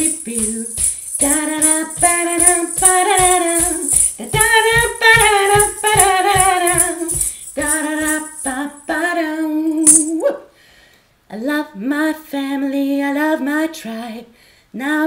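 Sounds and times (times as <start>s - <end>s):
shaker rattle: 0.0s - 10.2s
woman singing wordless melody: 0.0s - 10.4s, 11.3s - 15.0s.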